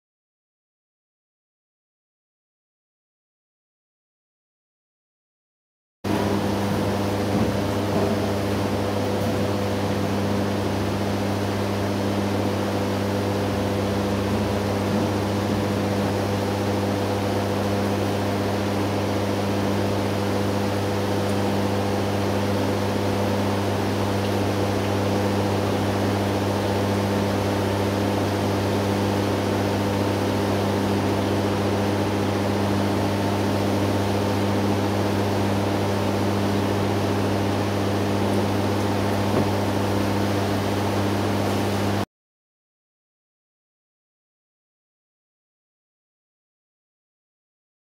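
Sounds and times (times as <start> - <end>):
water pump humming and hissing: 6.1 - 42.1.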